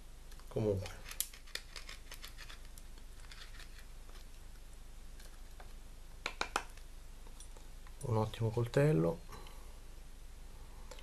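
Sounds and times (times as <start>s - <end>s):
knife carving wood: 0.8s - 4.3s.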